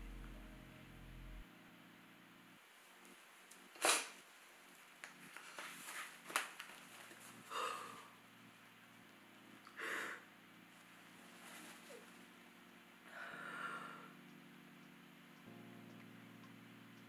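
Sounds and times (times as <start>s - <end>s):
tissue rustling: 4.9s - 7.4s, 11.2s - 12.2s.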